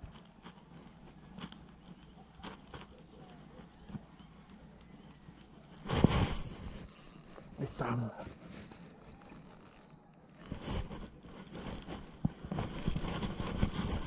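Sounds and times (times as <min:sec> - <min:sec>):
fishing reel gears clicking: 0:06.3 - 0:14.0.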